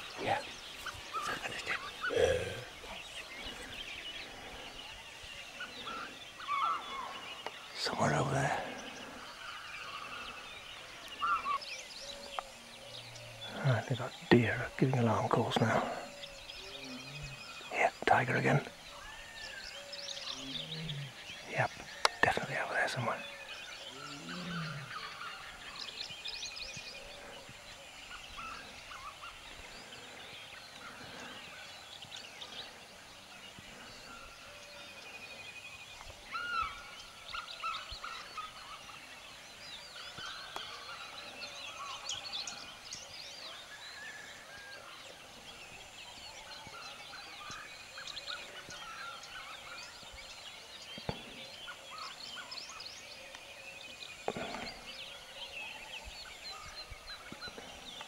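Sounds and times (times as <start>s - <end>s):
many birds chirping: 0.0s - 58.0s.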